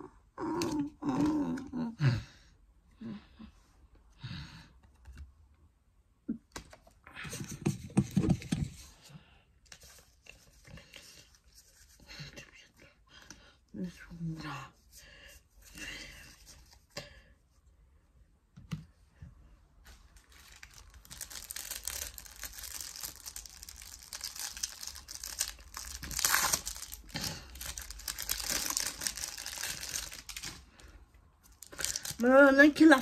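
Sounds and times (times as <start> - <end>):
foil wrapper crinkling and tearing: 20.2 - 30.6, 31.5 - 33.0.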